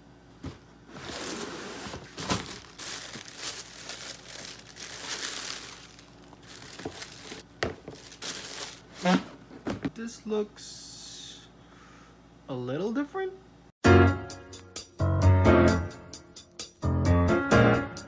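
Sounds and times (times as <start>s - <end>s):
tissue paper crinkling: 1.0s - 9.2s.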